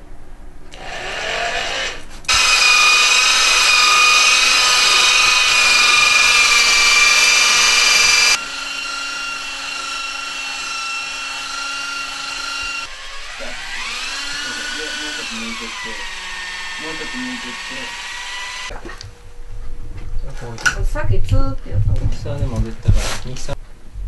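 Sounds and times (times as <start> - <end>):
electric motor whining: 0.7 - 18.7.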